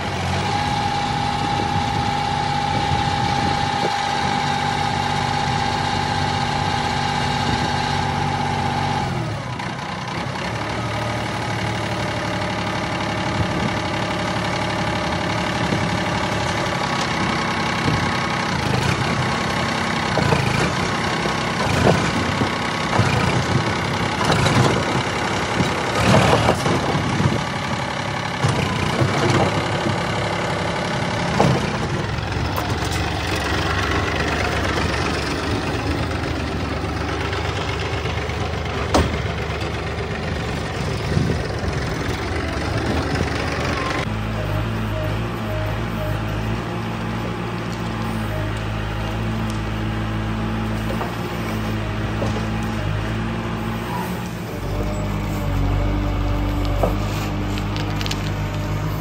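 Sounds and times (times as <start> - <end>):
tractor diesel engine running: 0.0 - 59.0
knocks and rattles: 20.0 - 27.6, 31.2 - 36.4, 37.0 - 44.0.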